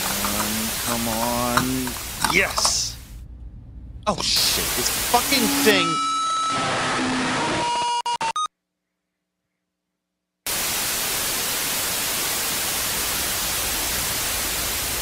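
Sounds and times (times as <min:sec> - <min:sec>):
radio static hiss: 0:00.0 - 0:03.1, 0:04.1 - 0:06.0
faint steady tones: 0:00.0 - 0:06.6.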